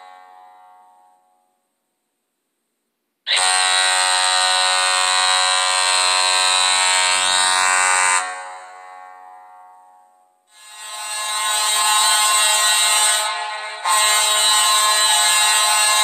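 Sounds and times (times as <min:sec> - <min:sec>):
arena goal horn blast: 0:10.5 - 0:16.0.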